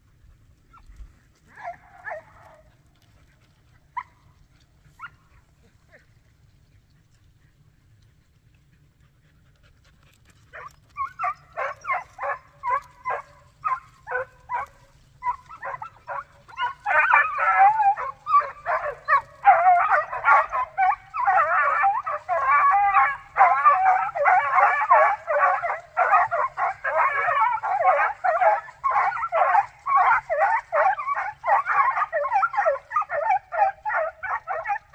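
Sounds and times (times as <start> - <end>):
hounds baying: 0.5 - 34.9
dog barks: 1.5 - 2.7, 10.6 - 34.9.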